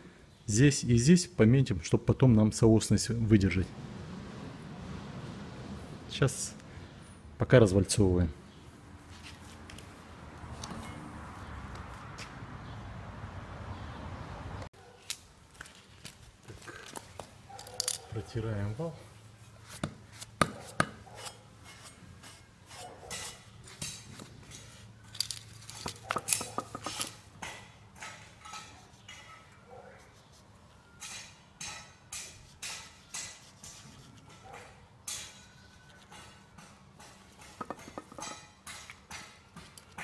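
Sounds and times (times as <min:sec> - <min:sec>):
metal clicks and clinks: 0:17.5 - 0:18.1, 0:24.6 - 0:29.4.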